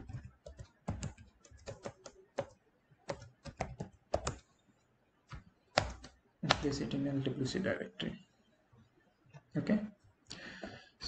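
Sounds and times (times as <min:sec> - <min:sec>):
computer keyboard typing: 0:00.0 - 0:04.5, 0:05.3 - 0:06.8.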